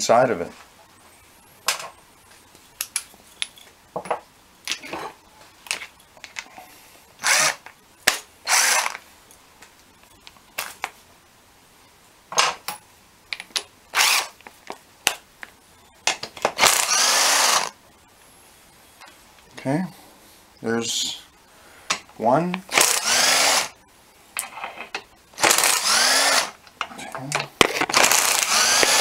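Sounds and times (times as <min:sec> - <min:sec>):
metal tools clinking: 0:02.9 - 0:04.2
cordless drill spinning: 0:07.2 - 0:07.7, 0:08.5 - 0:09.0, 0:14.0 - 0:14.3, 0:16.6 - 0:17.8, 0:22.7 - 0:23.8, 0:25.4 - 0:26.6, 0:27.9 - 0:29.0.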